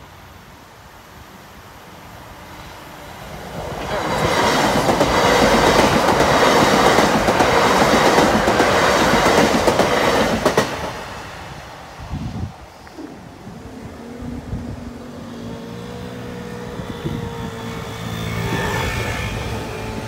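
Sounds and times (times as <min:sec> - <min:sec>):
train passing on rails: 0:00.0 - 0:20.0.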